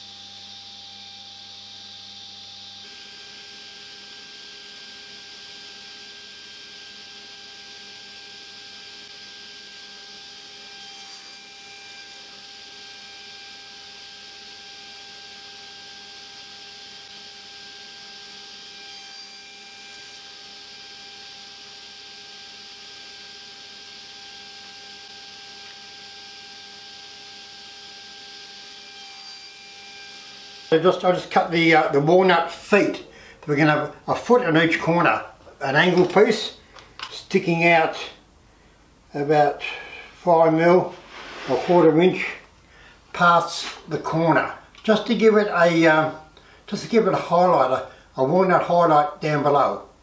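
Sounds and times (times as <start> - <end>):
table saw motor hum: 0.0 - 32.1.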